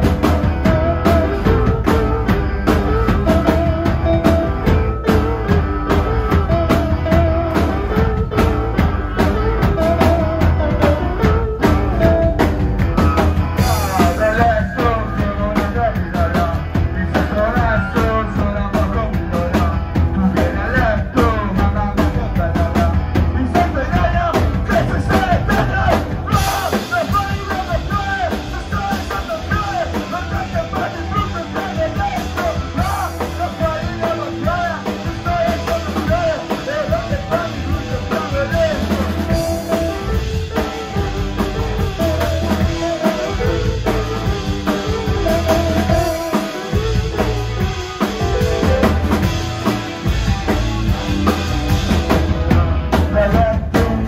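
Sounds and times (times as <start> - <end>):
person singing: 0.0 - 51.4, 52.3 - 54.0
drum kit: 0.0 - 54.0
electric bass: 0.0 - 54.0
electric guitar: 0.0 - 54.0.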